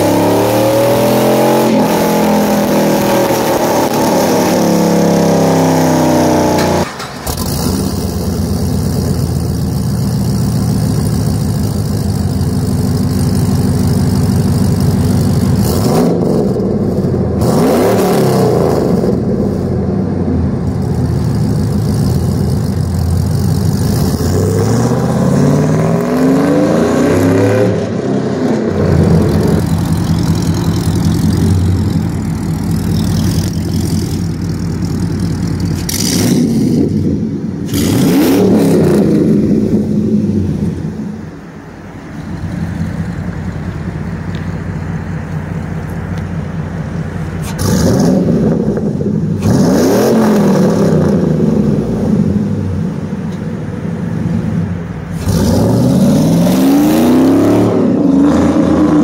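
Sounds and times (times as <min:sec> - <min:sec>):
engine revving: 0:00.0 - 0:41.4, 0:47.4 - 0:53.2, 0:54.2 - 0:59.0.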